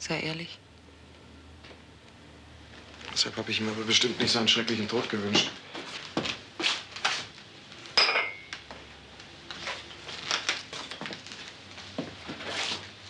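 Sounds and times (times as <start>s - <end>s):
dishes and cutlery clinking: 8.0s - 8.6s.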